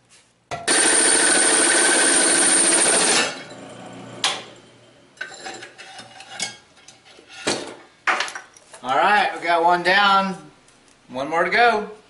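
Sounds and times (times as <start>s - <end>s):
drill press cutting metal: 0.7s - 4.5s.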